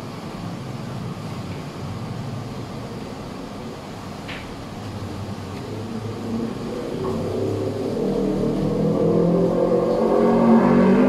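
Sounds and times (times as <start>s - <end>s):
vehicle engine: 4.7s - 11.0s.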